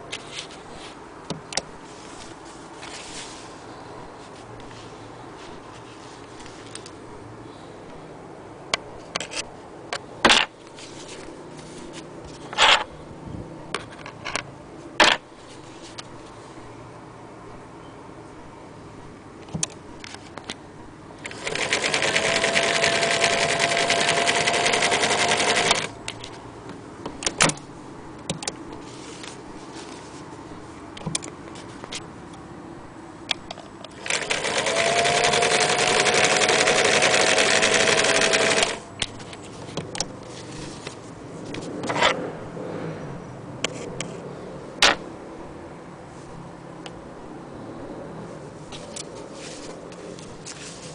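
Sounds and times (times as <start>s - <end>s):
sewing machine stitching: 21.2s - 25.9s, 33.9s - 38.8s.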